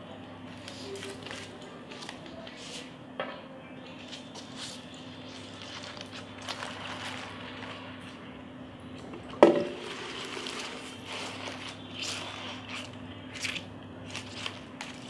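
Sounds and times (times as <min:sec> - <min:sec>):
faint steady hum: 0:00.0 - 0:15.0
leafy greens rustling: 0:00.5 - 0:03.0, 0:03.9 - 0:08.4, 0:09.6 - 0:15.0.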